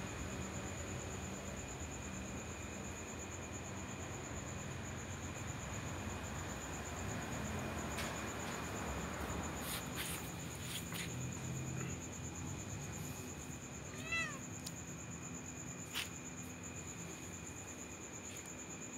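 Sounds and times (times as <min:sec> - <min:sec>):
crickets chirping: 0:00.0 - 0:18.9
cat meowing: 0:13.9 - 0:14.5.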